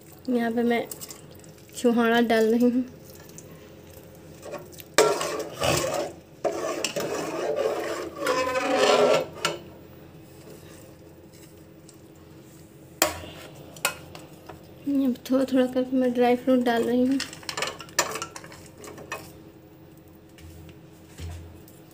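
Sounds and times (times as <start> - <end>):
metal spoon scraping in pot: 4.4 - 9.6.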